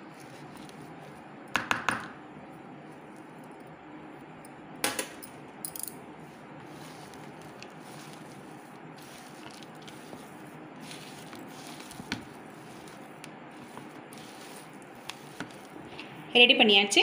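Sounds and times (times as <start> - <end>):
hand mixing mash: 0.0 - 1.5, 6.2 - 16.4.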